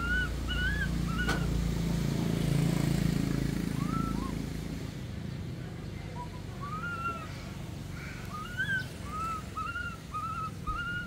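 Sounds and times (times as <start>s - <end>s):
young monkey high calls: 0.0s - 1.5s, 6.6s - 11.0s.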